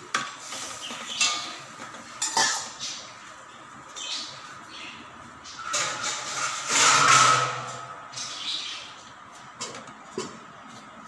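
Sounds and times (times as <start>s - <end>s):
metal lid scraping and clanking: 0.4s - 2.8s, 5.5s - 8.2s.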